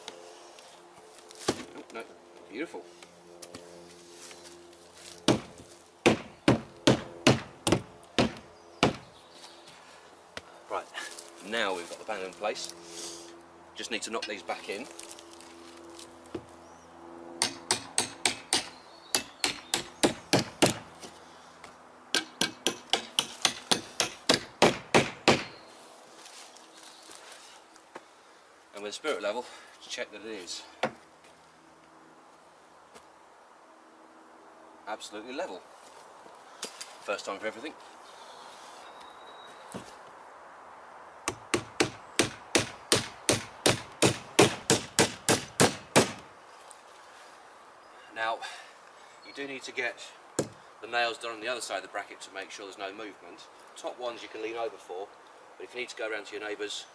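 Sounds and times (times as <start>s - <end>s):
hammer striking nails into wood: 5.3s - 9.1s, 17.4s - 20.9s, 22.1s - 25.6s, 41.3s - 46.3s
hammer blows on nails: 41.3s - 46.3s.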